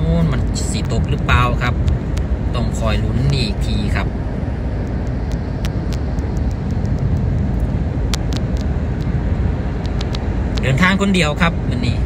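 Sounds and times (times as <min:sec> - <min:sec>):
car cabin road noise: 0:00.0 - 0:12.0
faint sharp ticks: 0:09.8 - 0:10.7.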